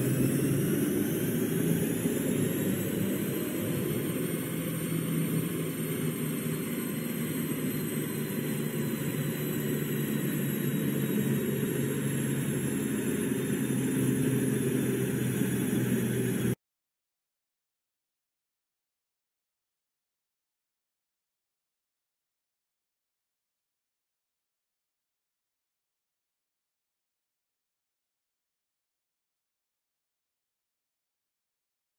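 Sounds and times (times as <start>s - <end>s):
diesel engine running hard: 0.0s - 16.6s
high whine: 0.0s - 16.6s.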